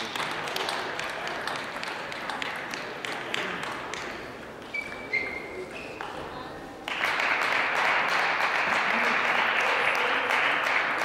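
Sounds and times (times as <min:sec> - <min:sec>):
spectators clapping: 0:00.0 - 0:04.3, 0:06.8 - 0:11.0.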